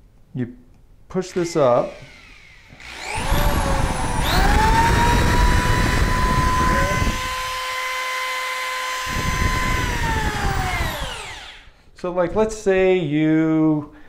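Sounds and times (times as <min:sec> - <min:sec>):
electric drill whining: 0:01.3 - 0:11.8.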